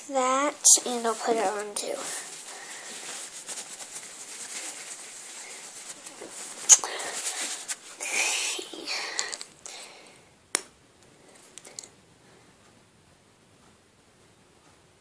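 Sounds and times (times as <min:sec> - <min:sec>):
handling rustling: 0:00.7 - 0:08.2.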